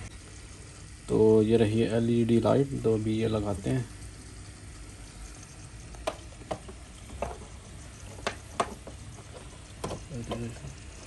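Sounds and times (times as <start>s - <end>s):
air pump running: 0.0s - 11.0s
bubbling water: 3.1s - 11.0s
plastic clicks and knocks: 6.0s - 7.5s, 8.1s - 10.7s.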